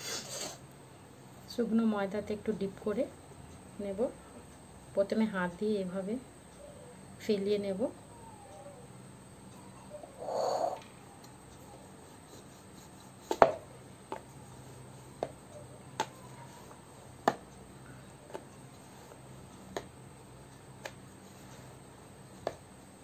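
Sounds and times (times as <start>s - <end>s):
rolling pin knocking on board: 13.3s - 14.3s, 17.2s - 17.4s.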